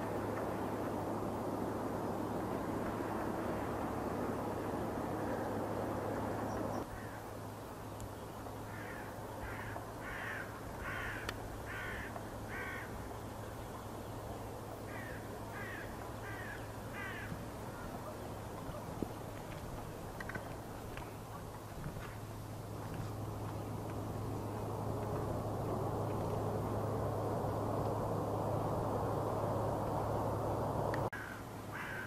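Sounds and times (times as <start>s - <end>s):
distant jet aircraft: 0.0s - 32.0s
crow cawing: 6.9s - 7.2s, 8.7s - 13.0s, 14.9s - 17.4s, 31.1s - 32.0s.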